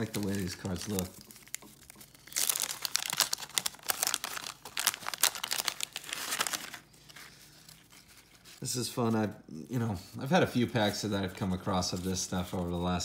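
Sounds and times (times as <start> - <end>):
wax paper wrapper tearing and crinkling: 0.0 - 8.7.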